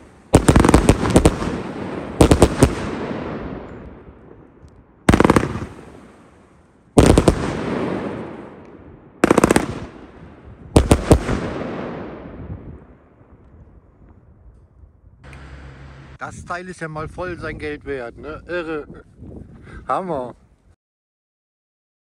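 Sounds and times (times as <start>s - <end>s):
firework volleys launching: 0.0s - 3.8s, 5.0s - 12.3s.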